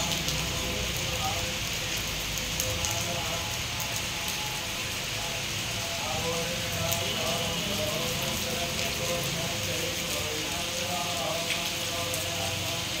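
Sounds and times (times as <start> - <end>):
heavy rain on pavement: 0.0 - 13.0.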